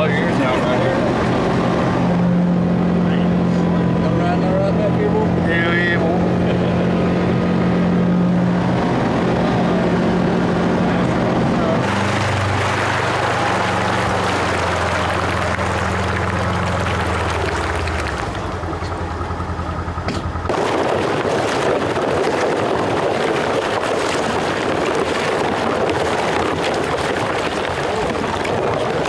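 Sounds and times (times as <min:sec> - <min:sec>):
vehicle engine humming: 0:00.0 - 0:29.0
water sloshing and splashing: 0:11.7 - 0:19.6, 0:20.4 - 0:29.0.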